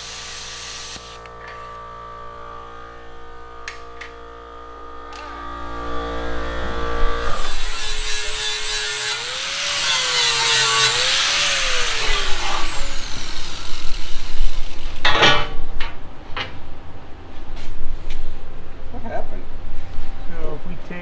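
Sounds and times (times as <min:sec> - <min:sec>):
angle grinder grinding steel: 0:04.8 - 0:15.2
sharp metal clanks: 0:15.0 - 0:16.5.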